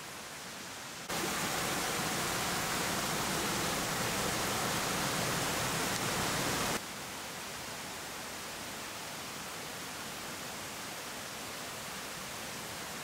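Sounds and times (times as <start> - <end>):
waterfall rushing: 1.0 - 6.8.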